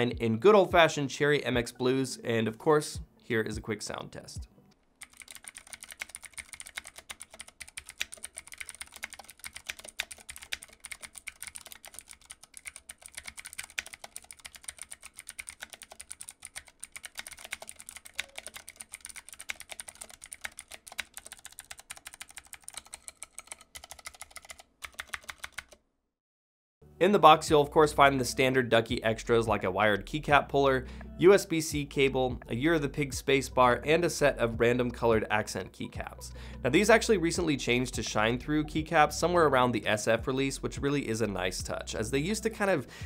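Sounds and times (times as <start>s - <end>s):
clicky keyboard typing: 5.0s - 25.8s.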